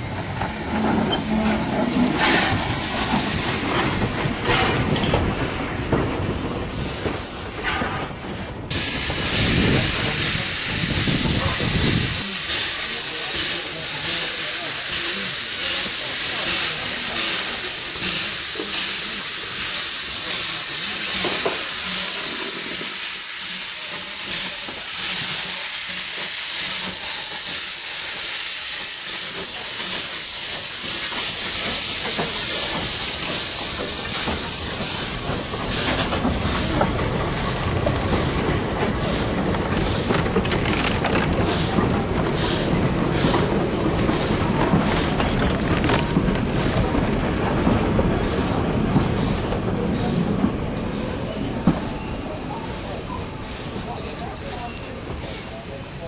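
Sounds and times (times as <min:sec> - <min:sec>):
wagons rumbling: 0:00.0 - 0:08.5, 0:31.6 - 0:49.2
steam hissing: 0:00.0 - 0:56.0
wheels clicking over rail joints: 0:29.5 - 0:48.4.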